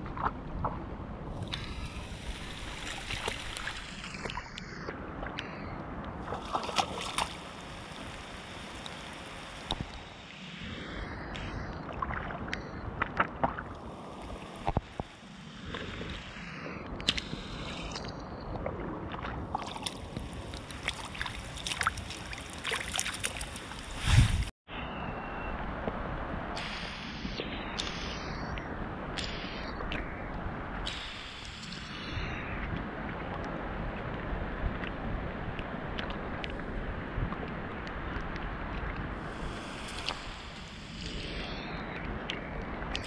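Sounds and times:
splashing in shallow muddy water: 0.0s - 5.5s, 6.2s - 10.1s, 17.0s - 24.5s.

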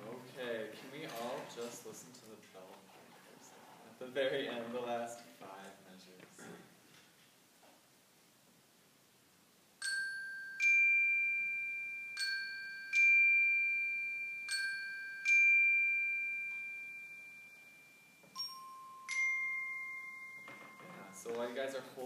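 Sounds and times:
glockenspiel notes ringing: 9.8s - 21.6s.

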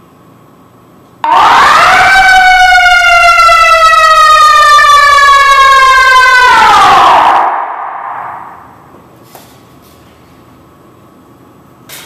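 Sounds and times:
fire engine siren: 1.2s - 8.8s.

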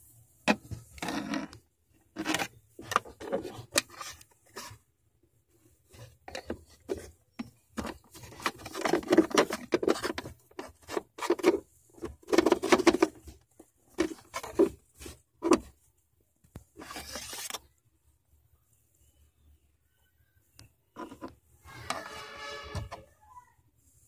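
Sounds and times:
hands tapping and scraping plastic: 0.5s - 4.8s, 5.9s - 15.8s.

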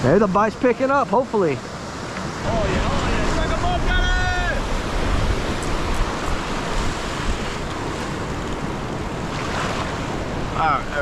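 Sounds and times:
surf breaking: 0.0s - 11.0s
wind on microphone: 2.3s - 11.0s.

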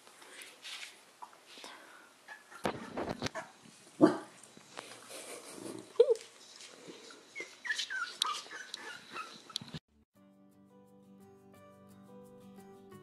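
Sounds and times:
puppies whimpering and squeaking: 2.3s - 3.6s, 7.1s - 9.8s
puppy yelp: 7.4s - 9.8s.

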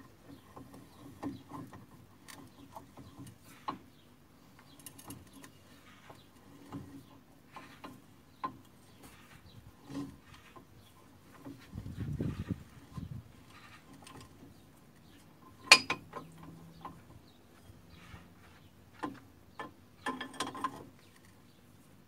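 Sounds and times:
sharp metal knocks: 15.6s - 16.3s.

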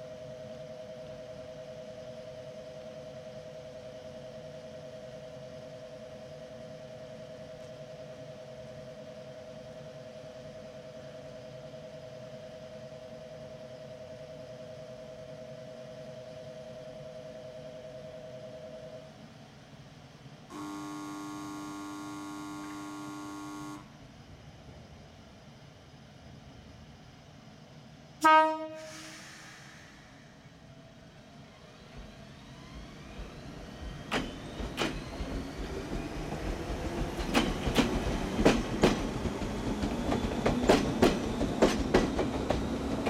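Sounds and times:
multi-pitch tone: 20.5s - 23.9s
two-pitch departure buzzer: 20.5s - 23.9s.

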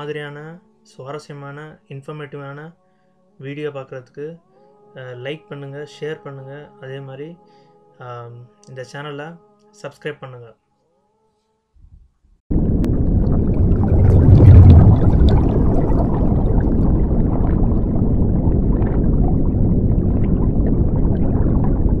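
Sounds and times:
underwater bubbling and gurgling: 12.5s - 22.0s.

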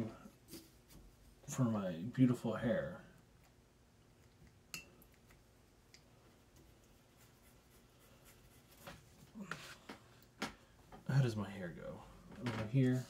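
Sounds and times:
paintbrush brushing and tapping: 6.2s - 10.1s.

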